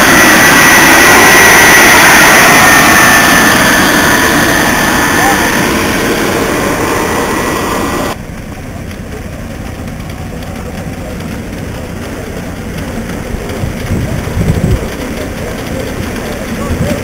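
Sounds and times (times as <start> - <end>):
loud steam hiss: 0.0 - 8.2.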